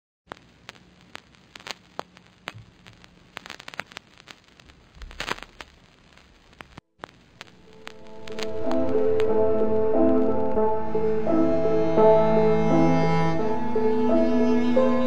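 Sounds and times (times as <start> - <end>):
crackle pops and clicks: 0.3 - 10.6
faint steady hiss: 0.3 - 15.0
low hum: 7.2 - 15.0.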